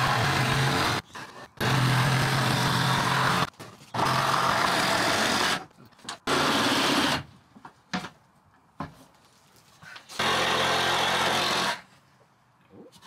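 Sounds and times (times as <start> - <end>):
power saw cutting plywood: 0.0 - 1.0, 1.6 - 5.6.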